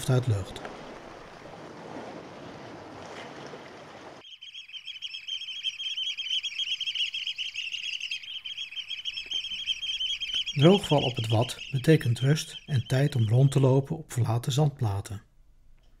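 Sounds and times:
many birds chattering: 4.2 - 15.1.

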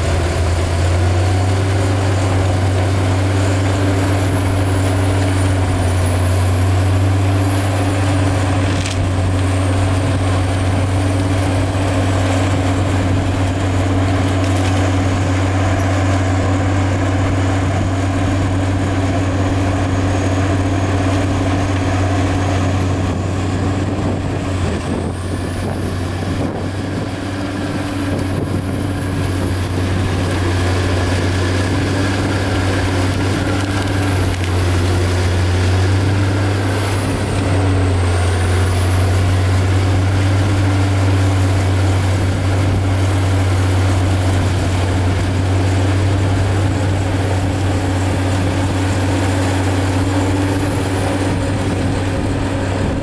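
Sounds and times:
diesel engine under load: 0.0 - 53.0
mulching head grinding wood: 0.0 - 53.0.

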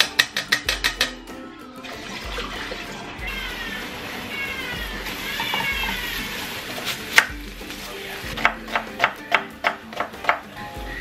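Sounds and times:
knife cutting onion on wooden board: 8.3 - 10.5.

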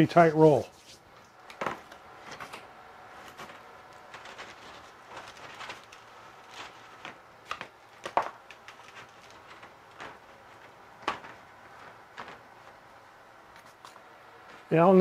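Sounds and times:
wire mesh clicking and rattling: 3.3 - 12.8.

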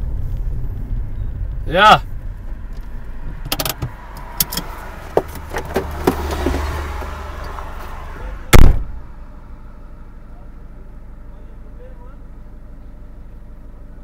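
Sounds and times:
car engine hum: 0.0 - 14.0
small clicks and knocks: 2.8 - 7.6
car door shutting: 2.8 - 7.9, 8.5 - 9.0.

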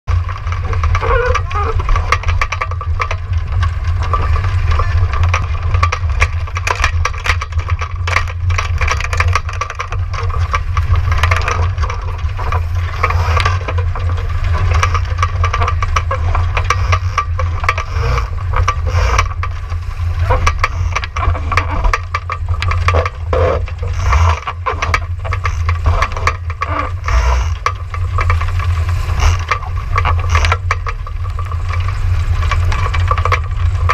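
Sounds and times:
boat fittings rattling and knocking: 0.1 - 33.9
water rushing along hull: 0.1 - 33.9.

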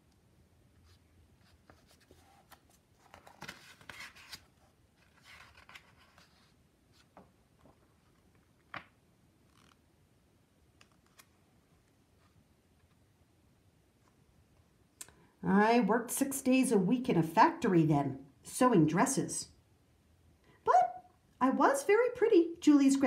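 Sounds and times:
paper rustling: 0.8 - 9.8.

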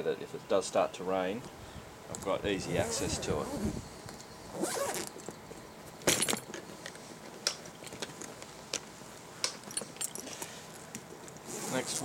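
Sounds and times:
zipper pulls and hardware jingling: 2.7 - 3.7, 4.5 - 5.2, 11.4 - 12.0.

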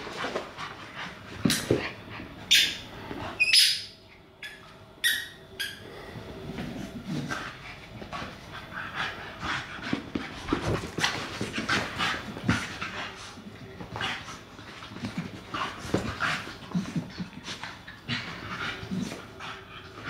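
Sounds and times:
dogs panting: 6.9 - 20.0.

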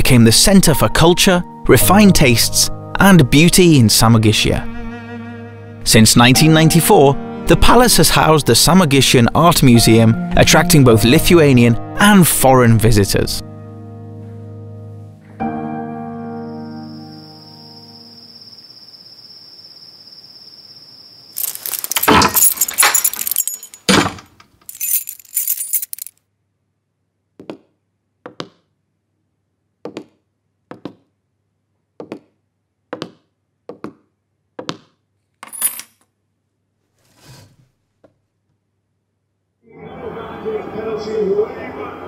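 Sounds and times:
crickets trilling: 16.6 - 22.6
soft thunk of keys set down: 21.4 - 26.1, 35.4 - 35.9
keys jingling: 21.4 - 26.2, 35.4 - 36.0.

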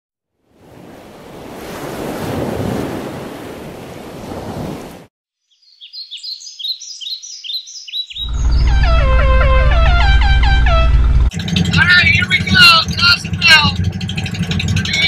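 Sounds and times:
ocean surf washing: 0.5 - 5.1
bird chirping: 5.4 - 10.8
loud low drone: 8.2 - 15.0.

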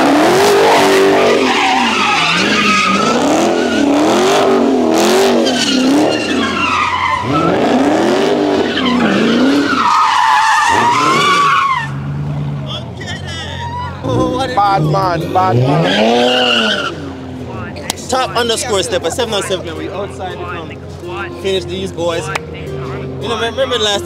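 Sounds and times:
car engine revving: 0.0 - 24.0
tyres squealing: 0.6 - 12.0, 13.2 - 17.3.

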